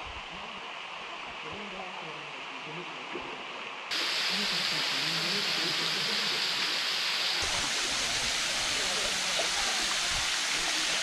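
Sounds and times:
waterfall rushing: 3.9 - 11.0.

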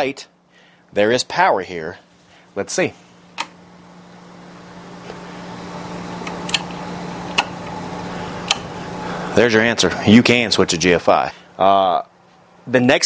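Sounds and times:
steady low hum: 0.0 - 13.0
wall switch click: 3.4 - 3.6.

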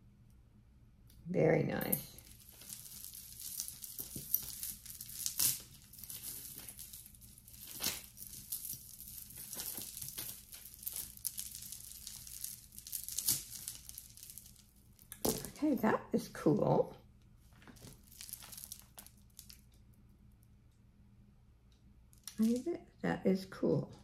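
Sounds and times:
necklaces and chains rattling: 1.7 - 15.6, 17.7 - 19.6.

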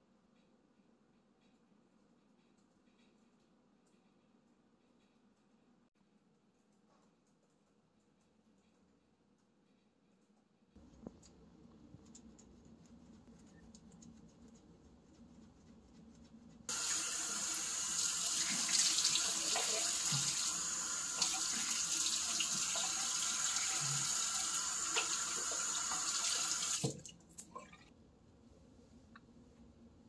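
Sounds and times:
water running into sink basin: 16.7 - 27.9.

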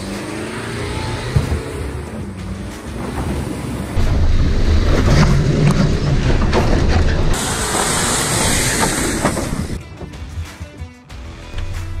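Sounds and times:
diesel engine revving hard: 0.0 - 2.2.

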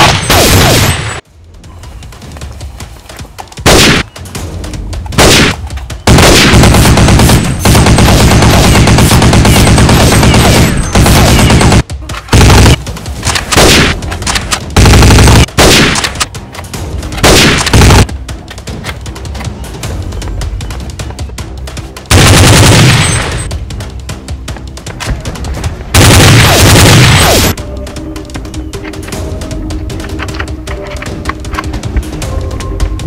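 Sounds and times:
automatic gunfire bursts: 6.1 - 12.8, 14.8 - 16.1, 22.1 - 23.4, 26.0 - 27.5.

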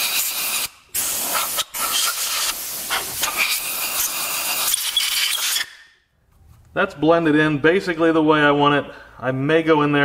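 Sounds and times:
compressed air blow gun hissing: 0.0 - 5.7.

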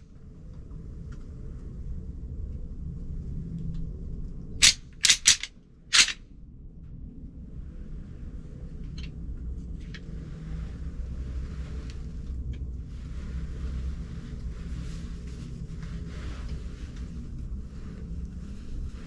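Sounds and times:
deer rattle clacking: 4.6 - 6.2.

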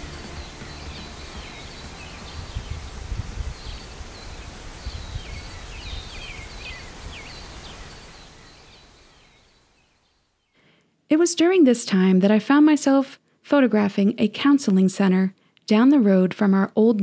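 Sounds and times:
birds chirping and whistling: 0.1 - 9.7
gusty wind rumble: 1.2 - 8.8.

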